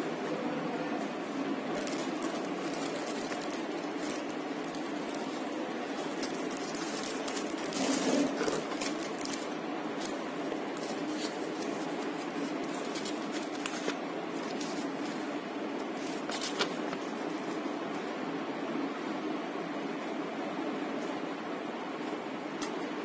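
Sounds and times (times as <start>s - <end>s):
steady low hum: 0.0s - 23.0s
paper leaflet rustling: 1.7s - 17.6s
plastic wrap crinkling: 1.7s - 17.6s.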